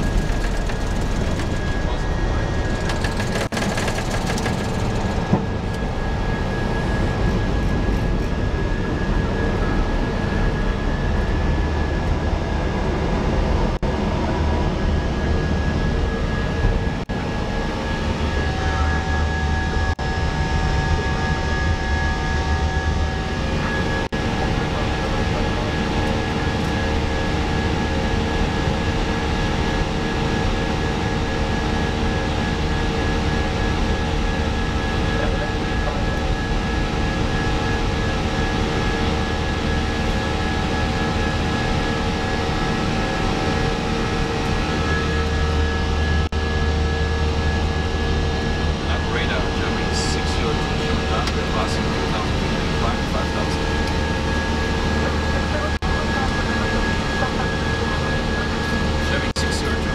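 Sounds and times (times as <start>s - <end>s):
low cabin rumble: 0.0s - 10.2s
steady whining tones: 0.0s - 59.9s.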